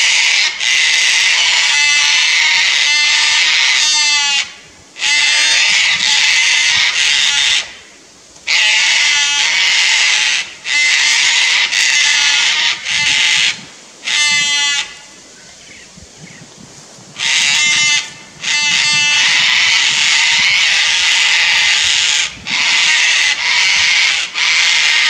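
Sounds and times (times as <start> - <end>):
cockatoos screeching: 17.2 - 25.0.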